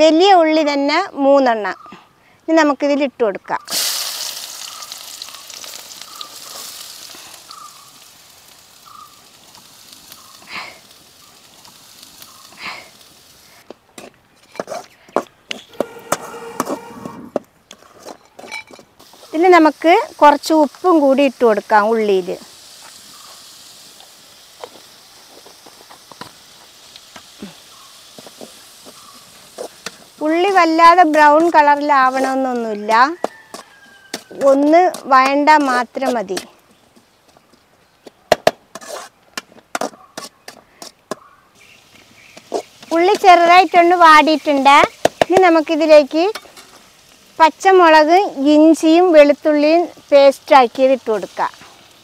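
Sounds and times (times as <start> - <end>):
onions sizzling in hot oil: 3.6 - 13.7, 18.2 - 36.5, 41.5 - 52.0.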